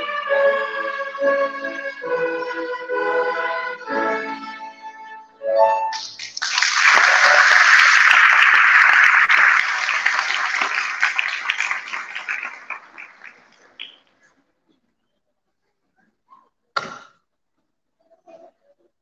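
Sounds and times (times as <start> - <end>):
violin notes: 0.0 - 5.9
audience applauding: 6.0 - 14.0.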